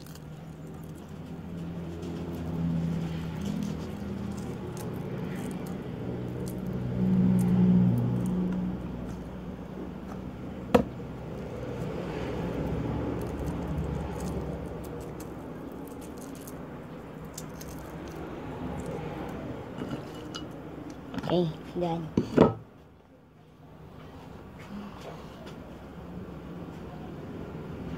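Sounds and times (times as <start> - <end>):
eggshell crackling: 0.0 - 9.2, 11.2 - 20.6.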